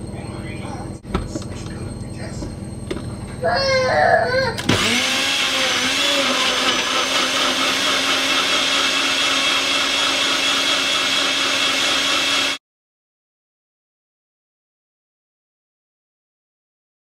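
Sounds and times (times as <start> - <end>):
blender motor whine: 4.5 - 12.6.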